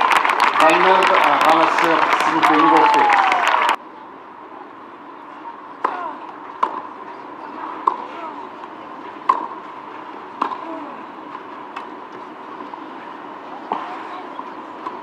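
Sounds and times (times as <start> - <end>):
faint crowd murmur: 0.0 - 15.0
tennis ball hits: 5.8 - 7.0, 7.7 - 9.6, 10.3 - 11.9.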